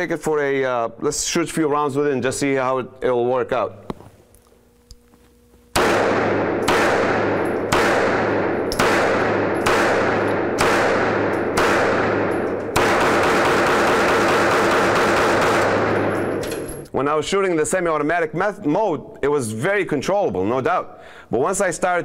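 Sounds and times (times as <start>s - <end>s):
gunshots: 5.8s - 16.4s.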